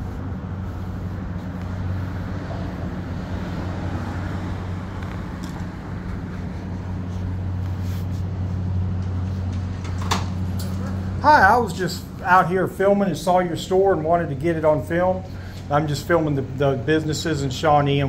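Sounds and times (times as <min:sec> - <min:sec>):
constant low hum: 0:00.0 - 0:18.0
street background noise: 0:00.0 - 0:18.0.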